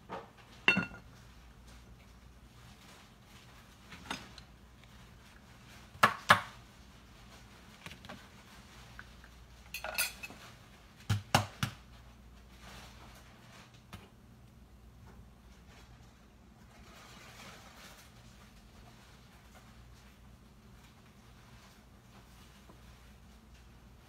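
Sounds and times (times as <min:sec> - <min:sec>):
dishes and utensils clinking: 0:00.6 - 0:01.1, 0:09.7 - 0:10.6.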